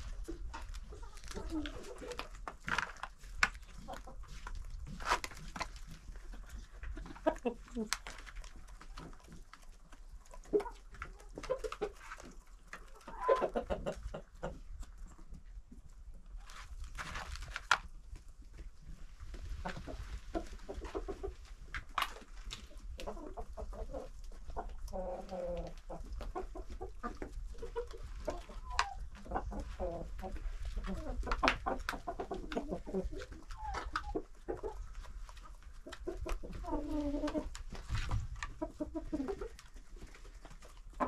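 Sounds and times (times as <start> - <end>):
drawn-out chicken calls: 0.0 - 15.4, 18.6 - 41.0
hens clucking softly: 0.0 - 16.8, 17.8 - 41.0.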